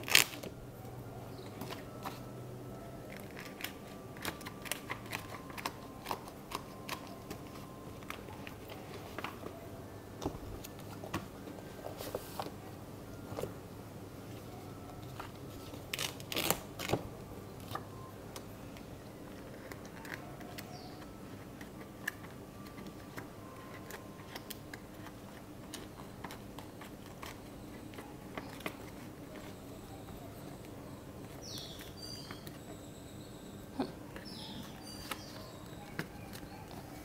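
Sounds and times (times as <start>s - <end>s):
low room hum: 0.0s - 37.0s
pages clicking onto metal discs: 3.1s - 9.4s.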